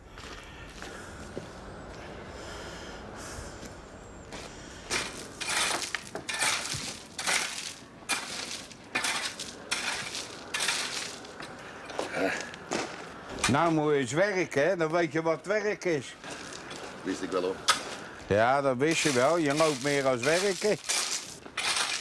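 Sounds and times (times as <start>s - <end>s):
rake scraping through gravel: 4.9s - 11.5s, 18.8s - 22.0s.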